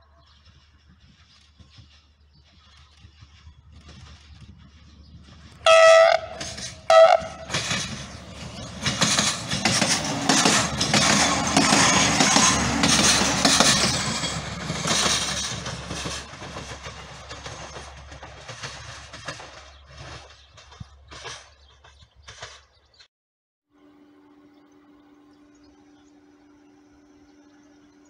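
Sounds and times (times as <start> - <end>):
diesel train passing: 0.1 - 22.4
train wheels on rails: 0.3 - 23.1.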